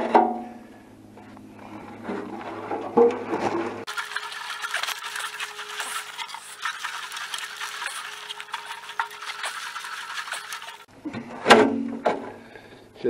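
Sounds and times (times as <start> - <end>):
liquid sloshing in metal tank: 3.3 - 10.9.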